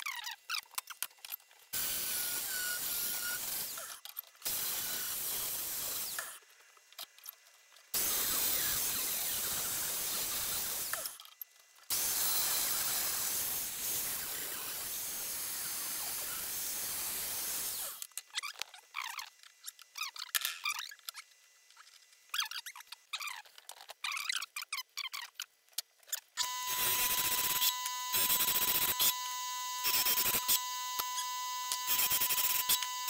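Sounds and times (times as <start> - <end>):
angle grinder cutting steel: 1.8 - 6.4, 8.0 - 11.2, 11.9 - 18.0, 26.4 - 33.0.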